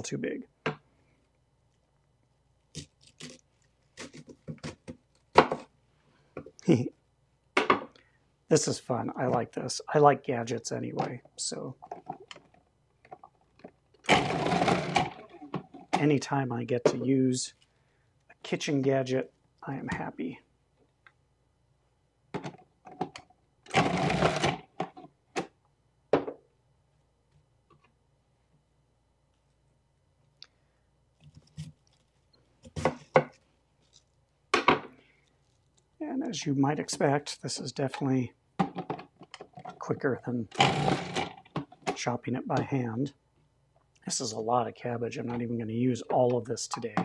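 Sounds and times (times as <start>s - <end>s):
food processor hum: 14.1s - 15.2s, 23.7s - 24.6s, 40.6s - 41.4s.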